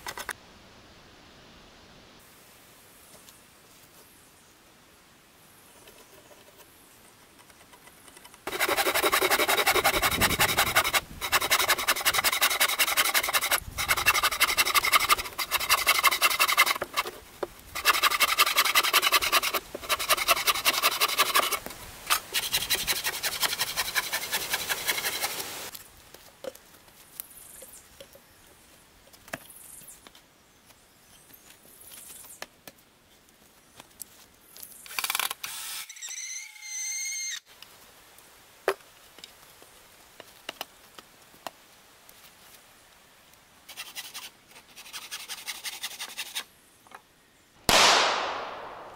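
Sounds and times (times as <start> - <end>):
hand tool rasping wood: 8.5 - 25.5.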